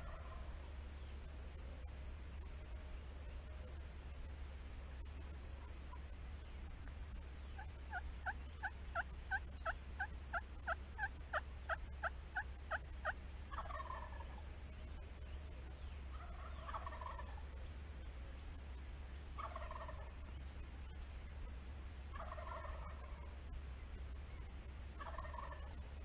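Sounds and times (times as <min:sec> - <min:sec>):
turkey gobbling: 0:00.0 - 0:00.5, 0:07.4 - 0:14.5, 0:16.1 - 0:17.5, 0:19.4 - 0:20.2, 0:22.1 - 0:23.4, 0:25.0 - 0:25.8.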